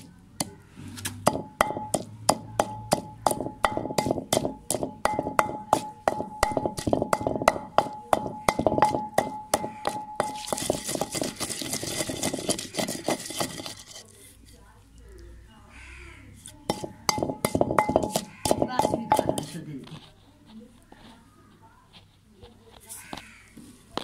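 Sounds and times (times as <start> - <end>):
wooden pestle knocking clay mortar: 0.0 - 13.9, 16.7 - 19.6.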